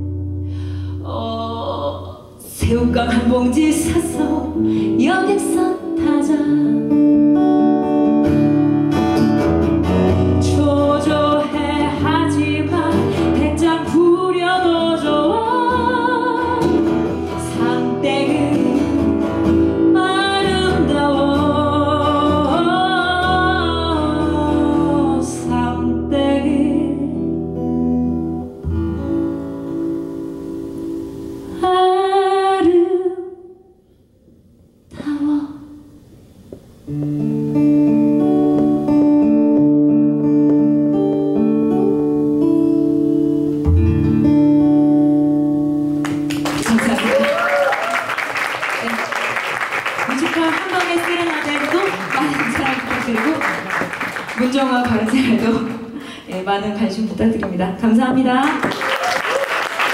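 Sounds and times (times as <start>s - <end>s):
woman singing with vibrato: 1.0s - 7.0s, 10.3s - 27.4s, 31.5s - 33.8s, 34.9s - 36.0s
acoustic guitar strumming: 2.9s - 31.7s, 36.0s - 46.5s.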